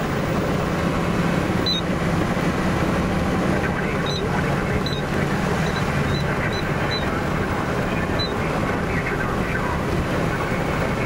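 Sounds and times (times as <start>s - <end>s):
vehicle engine rumble: 0.0s - 11.0s.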